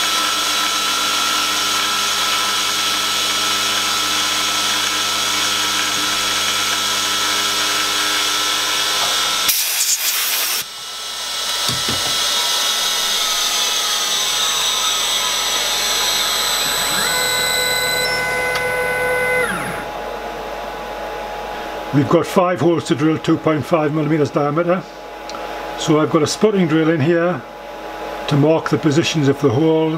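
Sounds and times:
milling machine whine: 0.0 - 20.2
high whining tones: 11.5 - 20.0.

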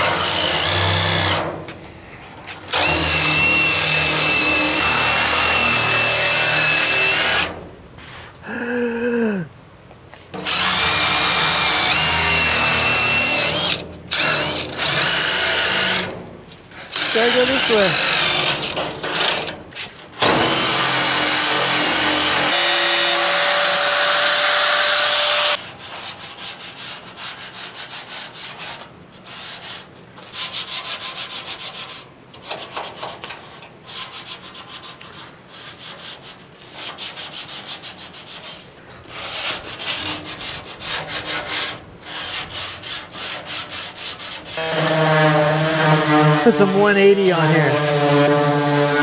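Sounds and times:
hand sanding sheet steel: 16.8 - 18.6, 25.6 - 49.0
angle grinder on steel: 16.8 - 19.5, 44.6 - 49.0
orbital sander running: 17.0 - 18.0.

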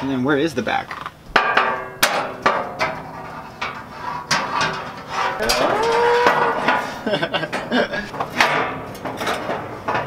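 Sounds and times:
metal parts knocking and clanking: 3.6 - 10.0.

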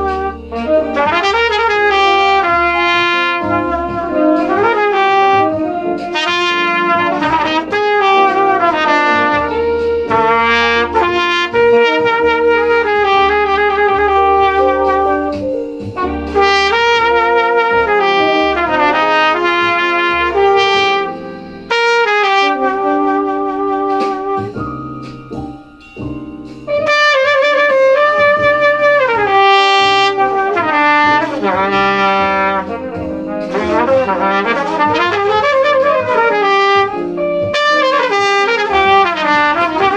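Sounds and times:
trumpet playing jazz: 0.0 - 39.9.

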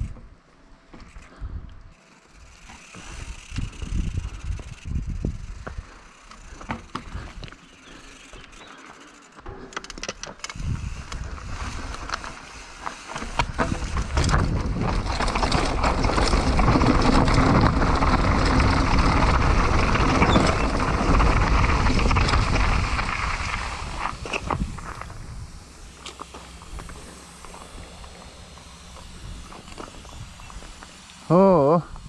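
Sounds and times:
bike rattling over bumps: 0.0 - 32.0
bike tyre noise: 0.0 - 32.0
wind rushing over microphone: 3.2 - 5.9, 10.5 - 12.2, 13.4 - 25.7.

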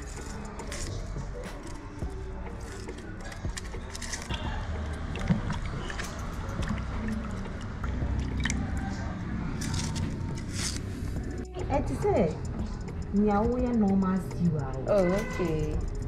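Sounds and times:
soft wet sounds: 0.0 - 11.5.

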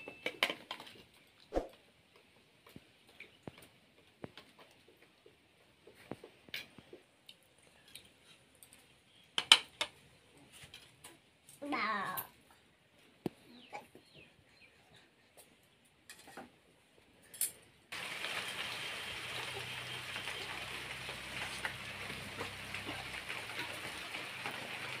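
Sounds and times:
steady hiss with low hum: 16.7 - 25.0.

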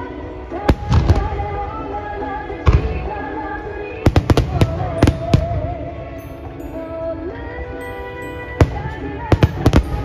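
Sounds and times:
melodic music: 4.2 - 10.0.

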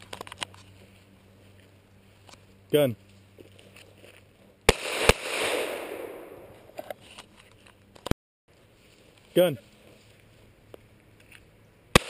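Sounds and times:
pistol shots: 4.7 - 6.5
rolling echo: 4.7 - 6.8.

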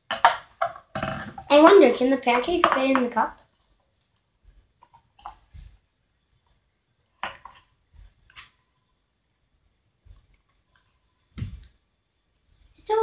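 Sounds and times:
rustles and taps of handling: 2.6 - 5.8, 10.0 - 11.8.

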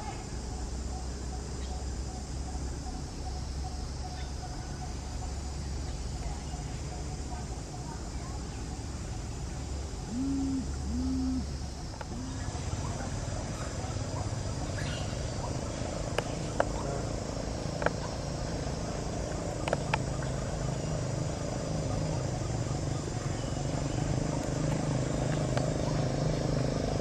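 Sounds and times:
faint high hiss: 7.5 - 13.6
motor humming: 10.1 - 12.5.

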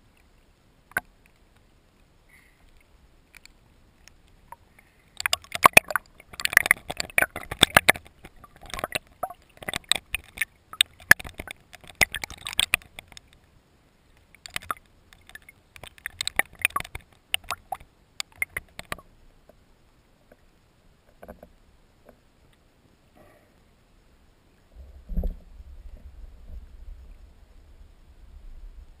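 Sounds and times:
water sloshing and crackling: 0.0 - 22.6
sharp clicks underwater: 0.1 - 1.7, 2.3 - 13.5, 14.1 - 19.6.

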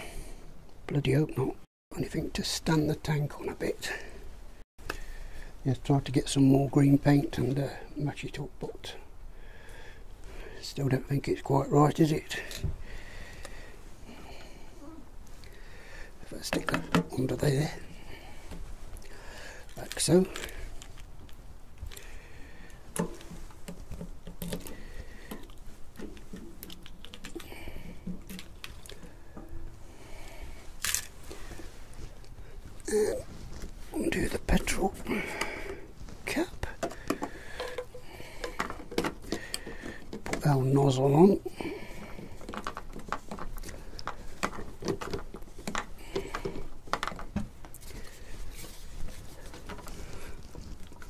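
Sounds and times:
plastic clicks scrapes and knocks: 22.9 - 27.4
hands clicking and tapping on parts: 22.9 - 29.5, 36.6 - 40.6, 42.0 - 48.0.

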